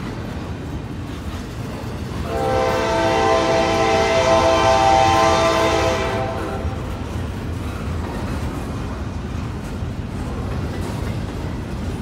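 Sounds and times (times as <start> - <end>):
freight train rumble: 0.0 - 12.0
locomotive air horn: 2.3 - 6.9.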